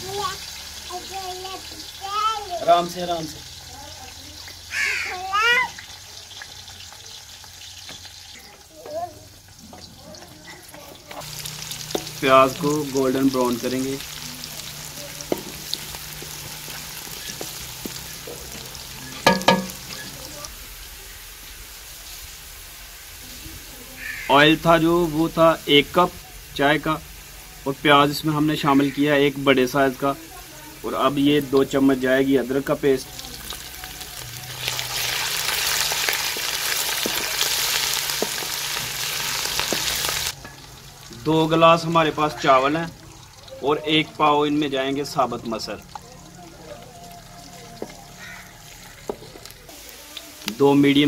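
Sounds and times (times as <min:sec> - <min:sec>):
onions sizzling in hot oil: 0:00.0 - 0:51.0
wooden spatula scraping: 0:34.6 - 0:40.3.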